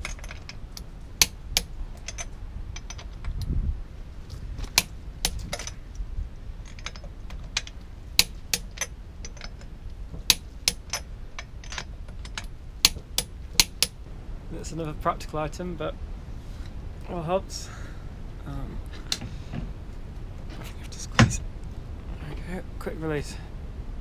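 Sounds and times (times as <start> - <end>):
small metal parts clinking: 0.0 - 3.4, 4.6 - 5.8, 6.6 - 14.0.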